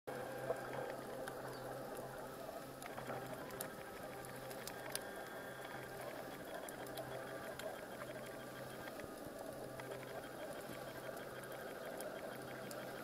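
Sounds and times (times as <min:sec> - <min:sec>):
soft underwater wash: 0:00.1 - 0:13.0
steady low hum: 0:00.1 - 0:13.0.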